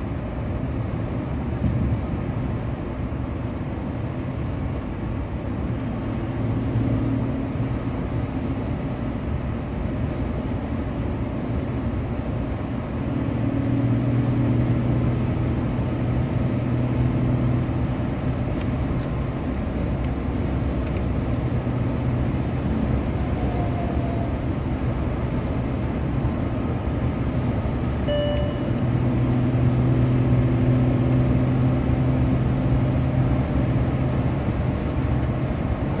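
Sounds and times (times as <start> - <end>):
car engine drone: 0.0 - 36.0
short electronic beep: 28.1 - 29.0.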